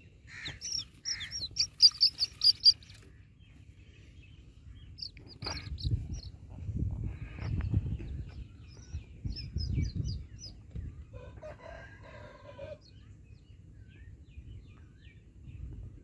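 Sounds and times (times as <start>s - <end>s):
chick peeping: 0.3s - 3.6s, 4.3s - 11.6s
rooster crowing: 11.2s - 12.8s.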